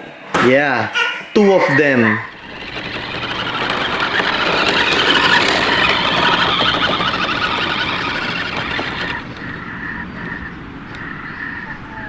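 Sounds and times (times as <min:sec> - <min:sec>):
toy car electric motor whining: 0:02.0 - 0:09.7
tyres running over dirt: 0:02.2 - 0:10.3.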